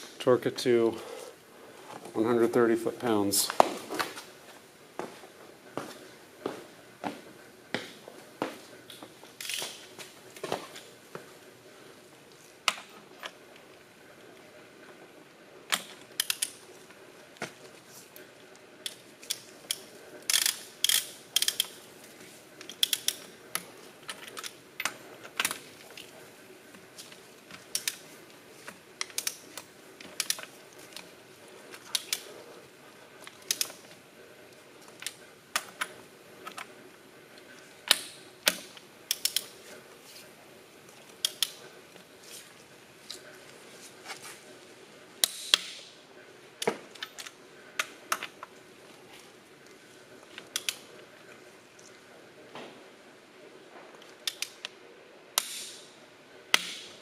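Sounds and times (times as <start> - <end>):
ratcheting torque wrench clicking: 20.3 - 21.7, 22.6 - 23.2.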